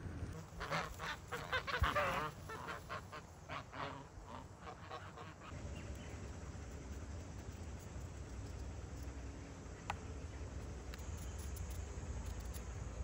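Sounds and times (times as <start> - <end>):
fowl calling: 0.3 - 5.6.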